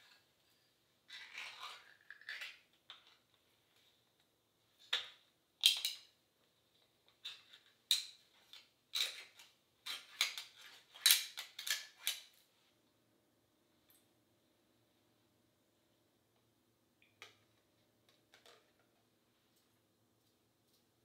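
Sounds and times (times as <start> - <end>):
spoon clinking and scraping tin can: 1.1 - 2.7.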